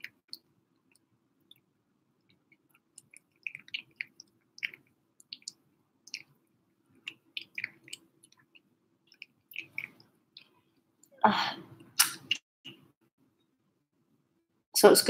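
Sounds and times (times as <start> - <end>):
kitten eating wet food: 0.0 - 10.6.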